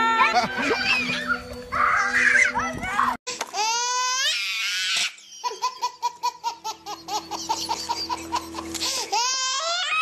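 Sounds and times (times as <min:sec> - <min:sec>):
child squealing: 0:00.0 - 0:02.7, 0:09.2 - 0:10.0
child giggling: 0:05.1 - 0:08.8.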